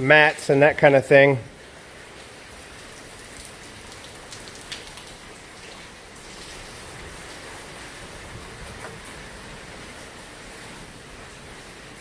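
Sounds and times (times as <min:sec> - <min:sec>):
raindrops ticking: 0:00.0 - 0:12.0
steady rain falling: 0:00.0 - 0:12.0.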